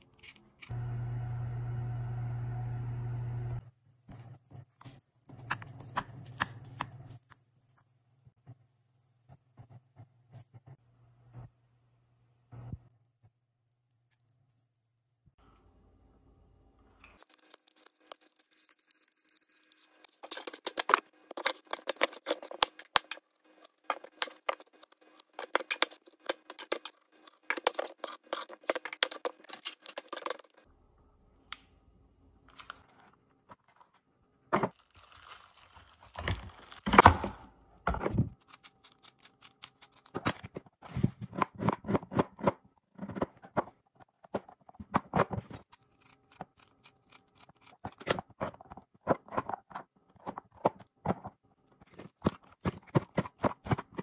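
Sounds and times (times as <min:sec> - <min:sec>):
peeler scraping apple skin: 0:17.2 - 0:30.5, 0:38.4 - 0:40.2, 0:45.6 - 0:48.3
crunching and rustling: 0:34.7 - 0:36.9.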